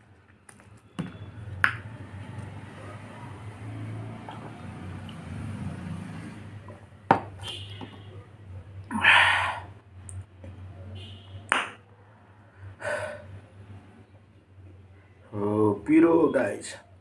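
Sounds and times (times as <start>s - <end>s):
man exhaling and gasping: 8.9s - 9.8s, 12.8s - 13.3s.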